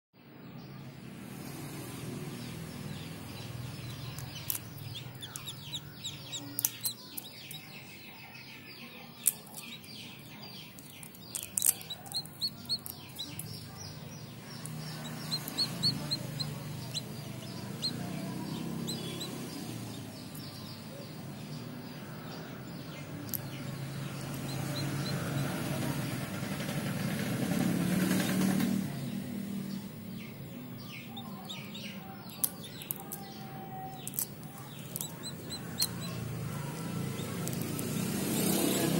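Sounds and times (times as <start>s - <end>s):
birds chirping: 0.2s - 38.9s
chickens calling: 2.4s - 29.2s, 30.0s - 38.9s
sharp clicks: 4.1s - 7.6s, 10.8s - 13.6s, 34.0s - 36.1s, 37.2s - 38.0s.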